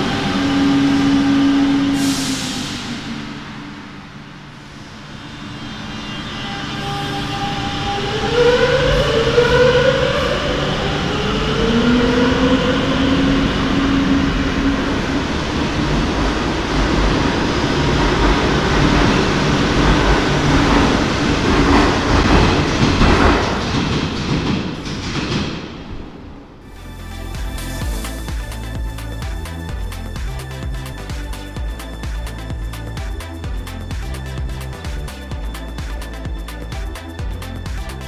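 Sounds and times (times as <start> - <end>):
train motor whine: 0.0 - 26.0
wheels rumbling on rails: 0.0 - 38.0.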